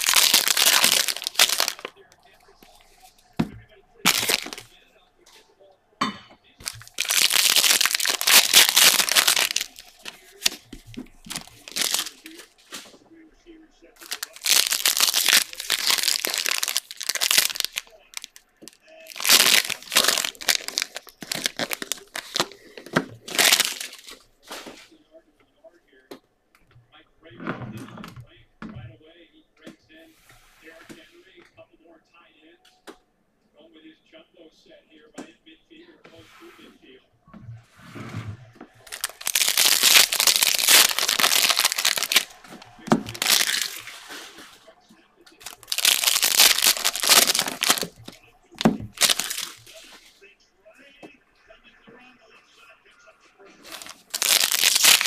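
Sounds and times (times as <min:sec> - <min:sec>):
foil wrapper crinkling: 0:00.0 - 0:02.0, 0:04.0 - 0:04.7, 0:06.6 - 0:12.9, 0:14.0 - 0:24.2, 0:38.9 - 0:44.0, 0:45.4 - 0:50.0, 0:53.6 - 0:55.0.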